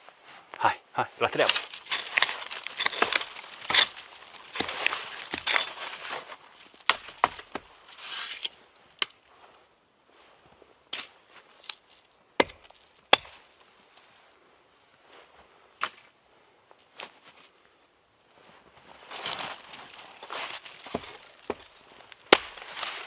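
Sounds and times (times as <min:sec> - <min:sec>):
dry wood cracking: 0:01.4 - 0:09.2, 0:19.2 - 0:23.0.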